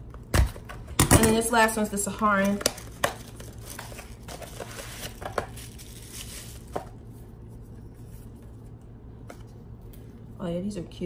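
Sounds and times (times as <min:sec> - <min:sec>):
cardboard packaging rustling: 0:02.3 - 0:08.6.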